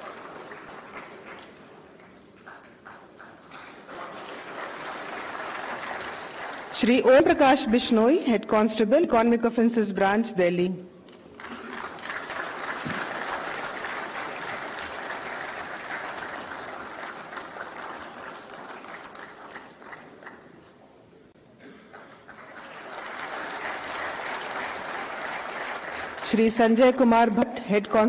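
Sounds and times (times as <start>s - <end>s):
audience applauding: 0.0s - 7.6s, 11.3s - 20.7s, 21.9s - 27.2s.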